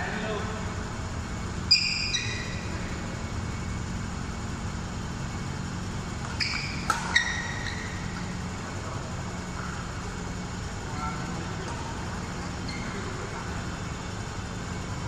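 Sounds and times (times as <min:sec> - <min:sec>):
steady low hum: 0:00.0 - 0:15.0
shoes squeaking on court: 0:01.7 - 0:02.8, 0:06.1 - 0:10.5, 0:11.6 - 0:14.8
racket hitting shuttlecock: 0:06.2 - 0:08.8.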